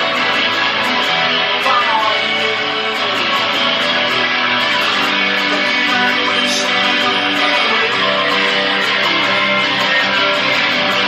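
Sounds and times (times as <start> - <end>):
guitar strumming: 0.0 - 11.0.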